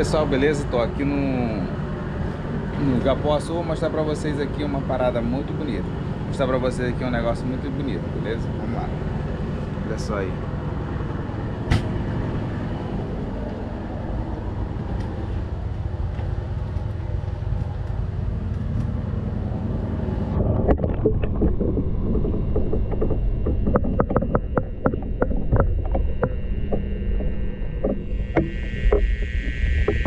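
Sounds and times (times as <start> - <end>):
outdoor ambience: 0.0 - 30.0
water and bubbles knocking camera: 20.4 - 30.0.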